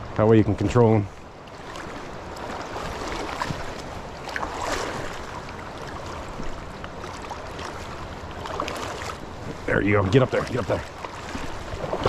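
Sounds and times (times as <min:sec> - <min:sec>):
water splash: 0:01.6 - 0:12.0.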